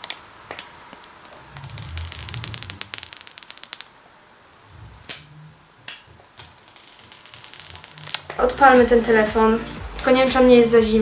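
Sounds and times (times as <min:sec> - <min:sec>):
plastic film peeling crackle: 0:00.0 - 0:03.9, 0:06.2 - 0:08.4.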